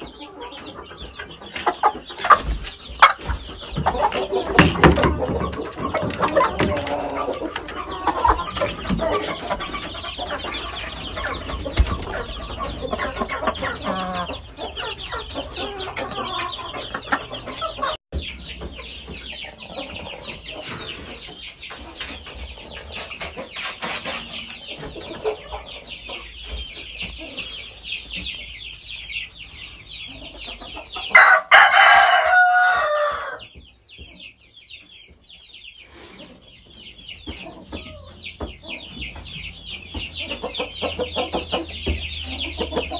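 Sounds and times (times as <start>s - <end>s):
chickens clucking and calling: 0.0s - 42.9s
rooster crowing: 31.2s - 33.4s.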